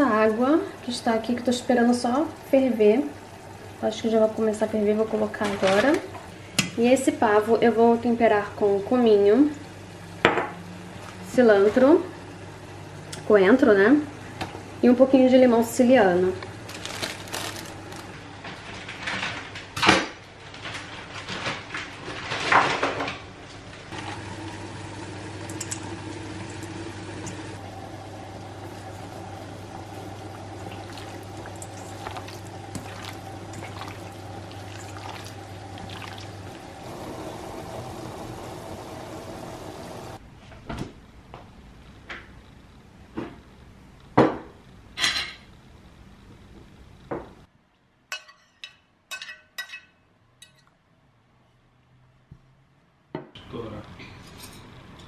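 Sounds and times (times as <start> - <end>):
low kitchen hum: 0.0 - 55.0
bag crinkling: 16.6 - 18.3.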